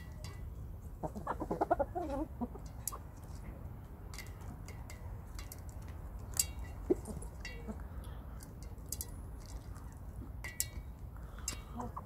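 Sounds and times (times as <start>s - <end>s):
chickens clucking: 0.8s - 3.3s, 6.8s - 7.8s, 11.7s - 12.0s.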